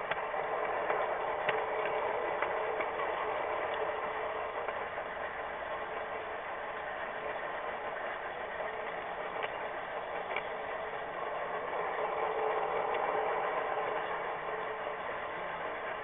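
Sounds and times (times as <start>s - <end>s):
faint clicks: 0.0s - 3.9s, 8.8s - 10.6s
model train whirring and rattling: 0.0s - 16.0s.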